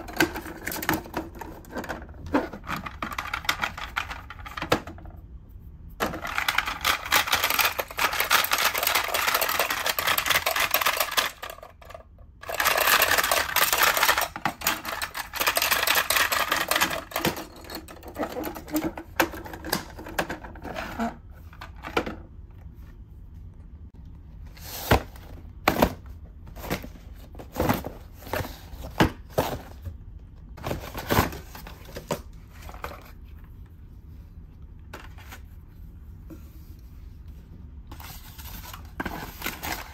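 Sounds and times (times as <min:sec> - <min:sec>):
plastic toy clattering: 0:00.0 - 0:05.2, 0:06.0 - 0:22.2.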